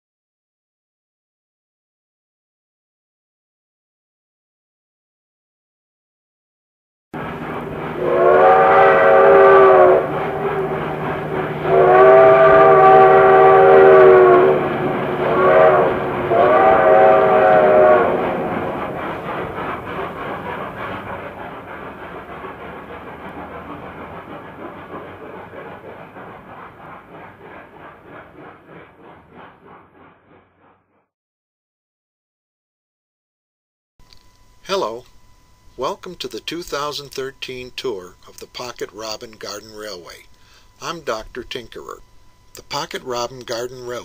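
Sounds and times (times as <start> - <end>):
train horn blasts: 7.2 - 19.0
train wheels clacking on rails: 7.2 - 31.0, 35.8 - 44.0.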